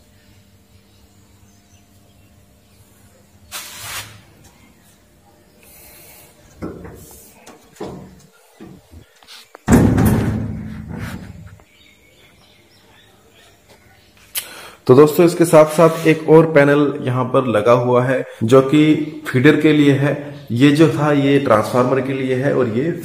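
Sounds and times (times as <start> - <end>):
knocks and handling on cabinet: 6.6 - 7.1, 7.8 - 8.9
metal cabinet door slamming: 9.7 - 11.4.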